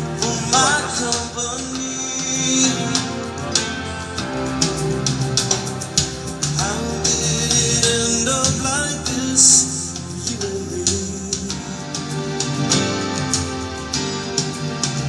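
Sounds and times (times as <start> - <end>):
person singing: 0.0 - 4.8, 6.5 - 12.8
song with guitar over loudspeakers: 0.0 - 15.0.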